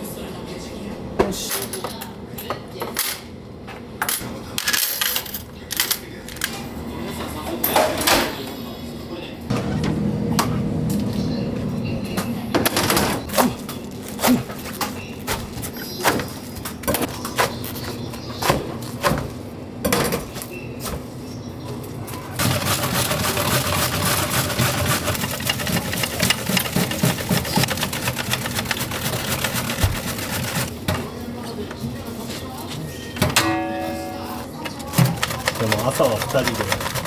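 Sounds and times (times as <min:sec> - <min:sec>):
cabbage shredded on hand slicer: 0:22.4 - 0:30.7.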